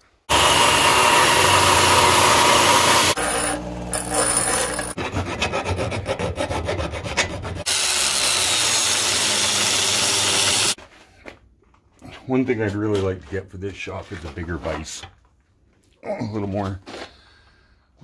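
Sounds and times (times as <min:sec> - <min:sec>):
angle grinder grinding metal: 0:00.3 - 0:10.8
chop saw cutting steel: 0:00.3 - 0:10.8
hand file rasping on pipe: 0:03.2 - 0:07.7.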